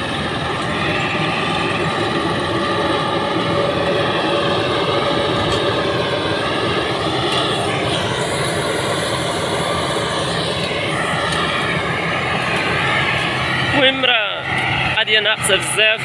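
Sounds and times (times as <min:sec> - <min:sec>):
combine harvester running: 0:00.0 - 0:16.0.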